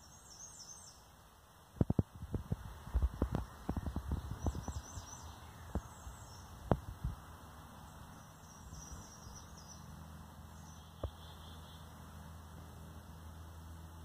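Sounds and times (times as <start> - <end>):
faint high bird chirps: 3.1 - 6.6, 7.8 - 12.0.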